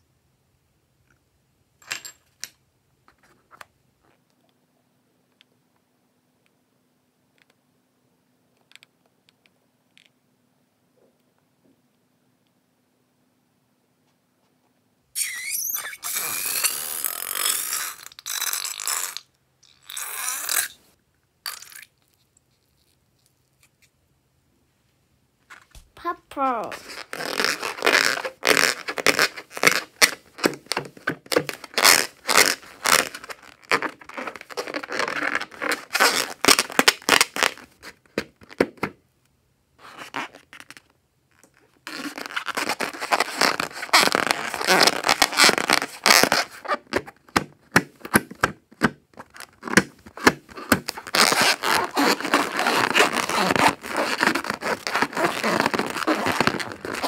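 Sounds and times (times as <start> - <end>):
rubber balloon squeaking: 15.2 - 20.9, 26.0 - 38.7, 39.8 - 57.0.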